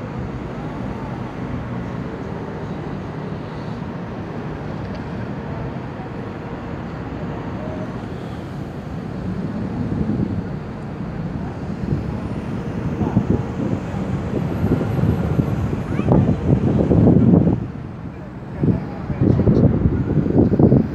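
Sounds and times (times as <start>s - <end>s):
low rumble of road traffic: 0.0s - 20.9s.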